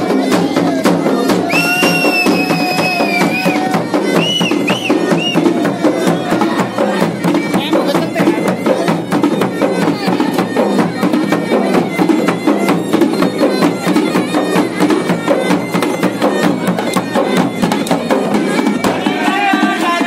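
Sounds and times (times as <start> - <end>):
bagpipe drone and melody: 0.0 - 19.6
drums beating dance rhythm: 0.0 - 20.0.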